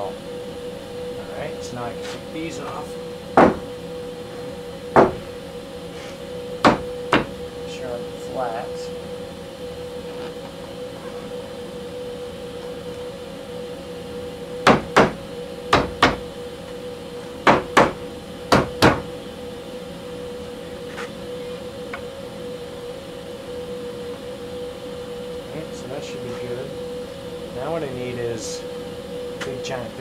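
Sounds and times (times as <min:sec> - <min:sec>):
steady machine hum: 0:00.0 - 0:30.0
hammer tapping on wood: 0:06.6 - 0:07.3.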